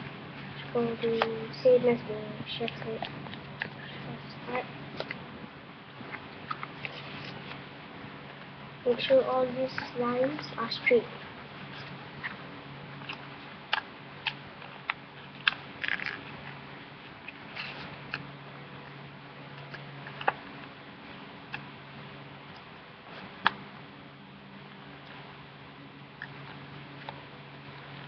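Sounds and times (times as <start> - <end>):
steady low hum: 0.0 - 28.0
paper crinkling and creasing: 6.4 - 7.6, 17.3 - 18.2.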